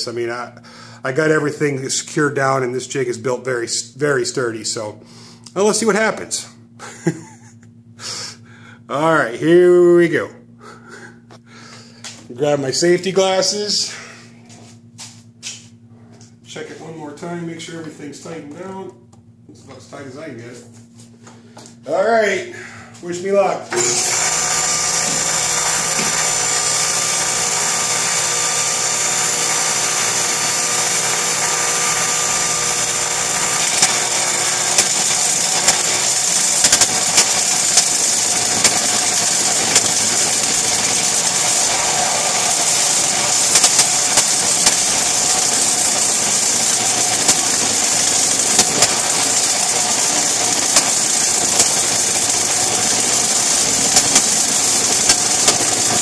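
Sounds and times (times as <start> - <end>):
power tool whine with cutting: 23.7 - 56.0.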